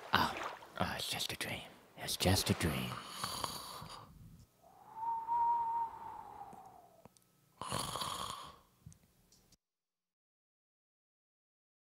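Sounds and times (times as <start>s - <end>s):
person imitating cartoon snore: 7.6s - 8.6s.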